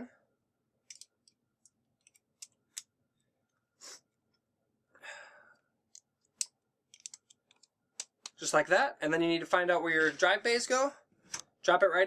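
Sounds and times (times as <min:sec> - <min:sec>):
plastic brackets clicking: 0:00.9 - 0:02.9, 0:05.9 - 0:08.4.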